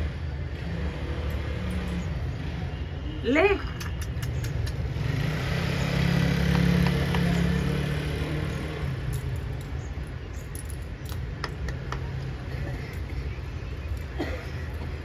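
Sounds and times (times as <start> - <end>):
sharp ticks: 3.8 - 5.0
vehicle engine running: 4.2 - 9.0.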